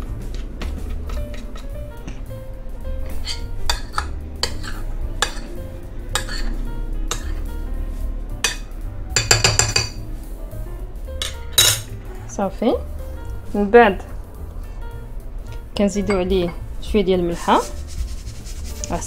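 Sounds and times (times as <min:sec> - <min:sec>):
background music: 0:00.0 - 0:19.0
metal spoon clinking on glass bowl: 0:09.2 - 0:10.0, 0:11.2 - 0:11.9.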